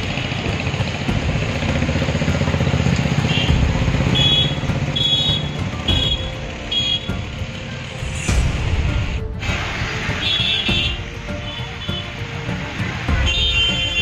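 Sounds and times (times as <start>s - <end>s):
motorcycle engines passing: 0.0s - 8.2s
road noise: 0.0s - 14.0s.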